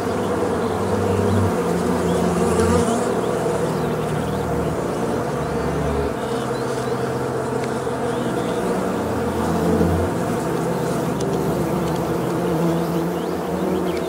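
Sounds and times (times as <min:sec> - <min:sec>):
low buzzing drone: 0:00.0 - 0:14.0.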